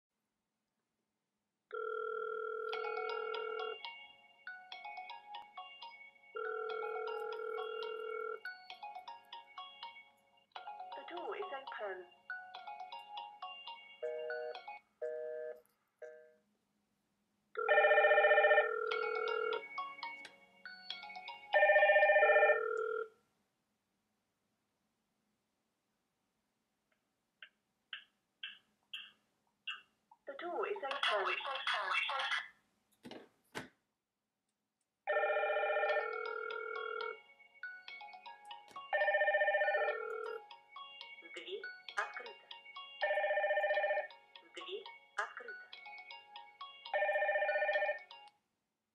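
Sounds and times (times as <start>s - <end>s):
ringtone melody: 1.7s - 16.4s, 17.6s - 23.1s, 35.1s - 48.3s.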